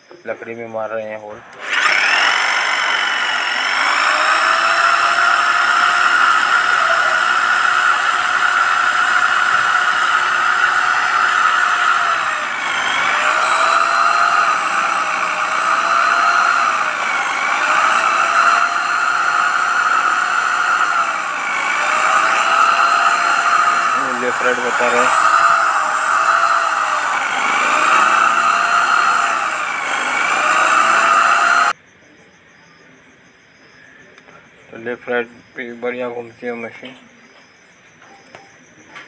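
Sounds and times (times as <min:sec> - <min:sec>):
drill boring into wood: 0:01.4 - 0:31.8.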